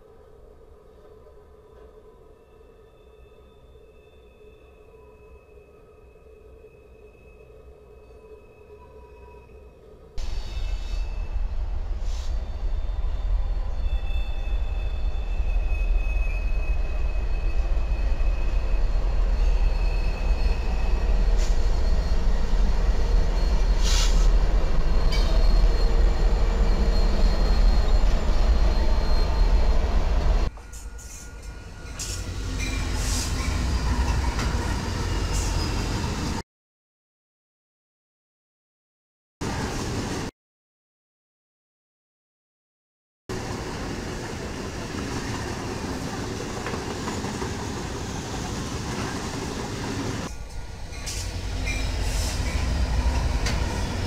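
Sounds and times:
diesel locomotives passing: 0:10.0 - 0:36.4, 0:43.3 - 0:54.0
freight train rumbling: 0:10.2 - 0:36.4, 0:39.4 - 0:40.3, 0:43.3 - 0:54.0
wheel squeal: 0:12.1 - 0:36.3, 0:46.2 - 0:54.0
train cars clanking: 0:13.6 - 0:36.1, 0:44.1 - 0:54.0.

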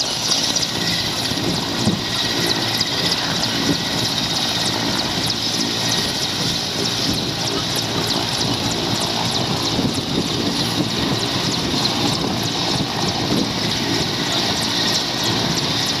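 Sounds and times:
helicopter engines and rotor: 0:00.0 - 0:16.0.

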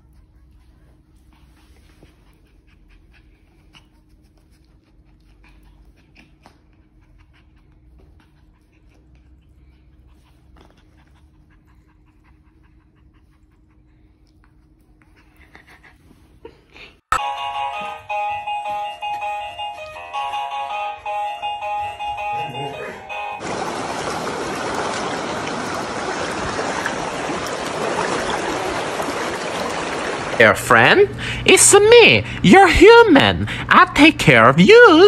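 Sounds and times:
puppy panting: 0:00.0 - 0:17.1, 0:17.7 - 0:23.4.

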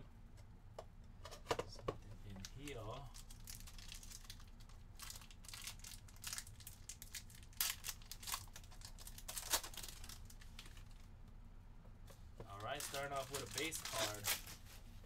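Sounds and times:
foil wrapper crinkling and tearing: 0:02.9 - 0:11.0, 0:12.6 - 0:14.6.

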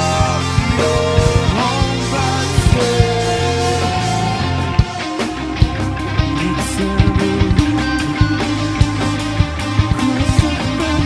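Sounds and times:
drum hits: 0:00.0 - 0:10.5
bass guitar: 0:00.0 - 0:11.0
electric guitar: 0:00.0 - 0:11.0.

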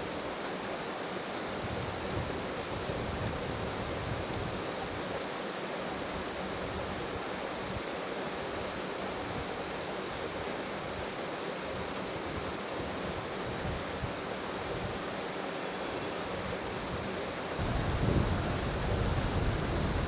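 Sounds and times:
stream water running: 0:00.0 - 0:20.0.

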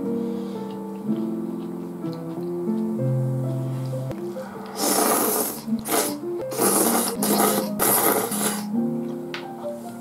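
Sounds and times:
slow background music: 0:00.0 - 0:10.0
noodles being slurped: 0:04.7 - 0:08.8.

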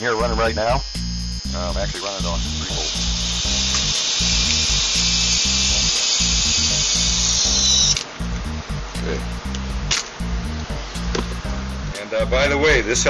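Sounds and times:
small electric motor whining: 0:00.0 - 0:08.1.

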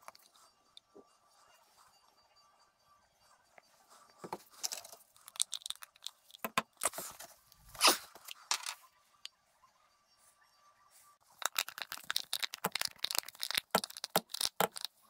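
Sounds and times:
plastic containers crinkling: 0:04.5 - 0:07.2, 0:11.3 - 0:15.0.

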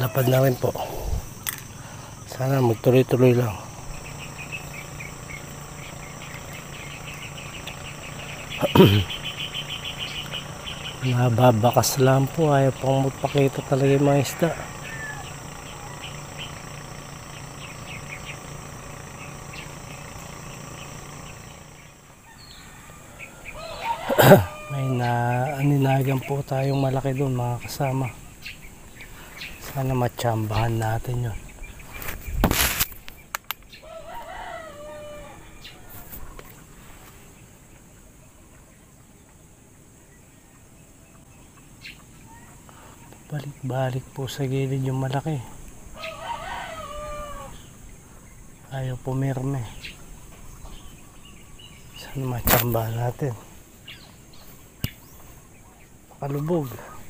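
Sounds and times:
rooster crowing: 0:00.0 - 0:00.9, 0:11.8 - 0:25.9, 0:33.7 - 0:36.3, 0:45.9 - 0:47.8
faint bird chirps: 0:00.0 - 0:57.0
insect drone: 0:00.0 - 0:57.0
low steady hum: 0:00.0 - 0:57.0
sharp clicks: 0:32.4 - 0:33.7.

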